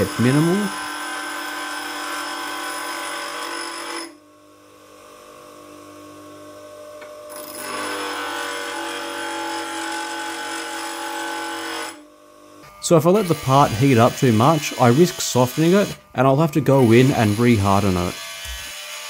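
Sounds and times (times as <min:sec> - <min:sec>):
grinder wheel grinding steel: 0:00.0 - 0:04.2, 0:12.6 - 0:19.0
grinder motor hum: 0:00.0 - 0:11.4, 0:12.2 - 0:19.0.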